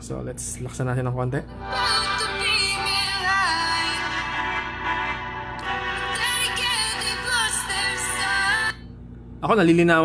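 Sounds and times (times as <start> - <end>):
song playing through phone speaker: 1.6 - 8.8.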